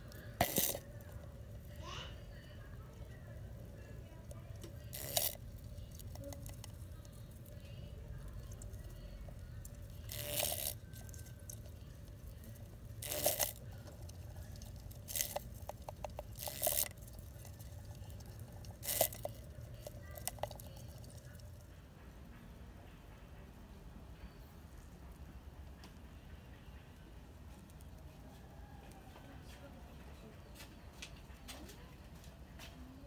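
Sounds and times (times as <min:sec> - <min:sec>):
plastic container crackling: 0:00.0 - 0:01.8, 0:03.0 - 0:21.5
low steady hum: 0:00.0 - 0:33.0.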